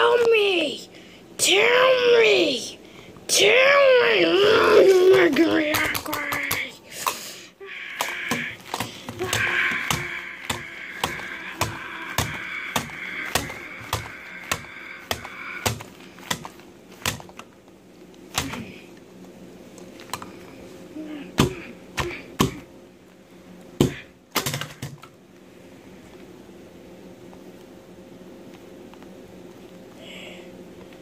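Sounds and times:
child mock crying: 3.4s - 6.8s, 9.2s - 15.7s.

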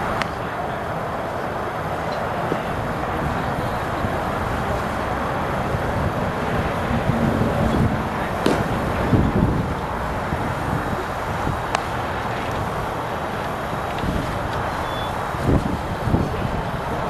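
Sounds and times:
wind on microphone: 2.6s - 17.0s
baseball hitting catcher's mitt: 8.4s - 9.0s.

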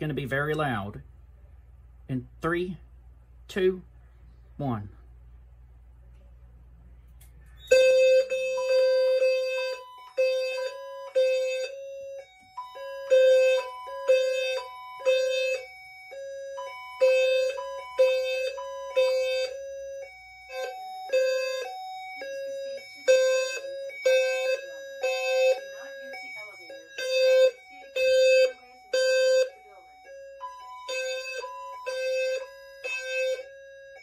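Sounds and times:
low-pitched fire alarm horns pulsing: 7.5s - 34.0s
higher-pitched alarm tones pulsing: 7.6s - 34.0s.

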